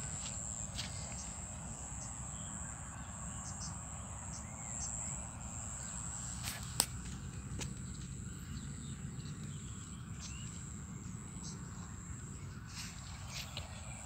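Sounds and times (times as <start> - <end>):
insect drone: 0.0 - 14.0.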